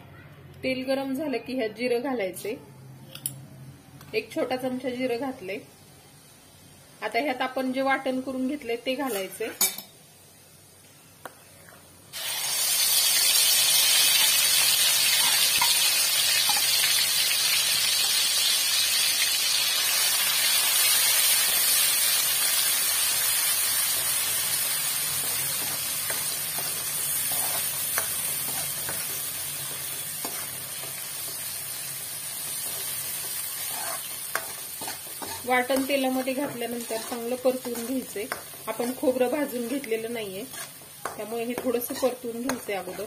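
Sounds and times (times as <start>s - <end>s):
paste sizzling in hot oil: 12.1s - 43.0s.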